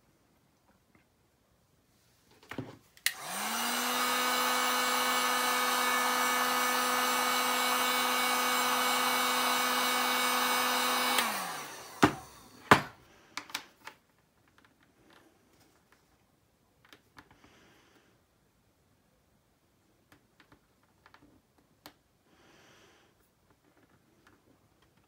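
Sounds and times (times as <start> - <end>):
heat gun fan blowing: 3.0 - 13.3.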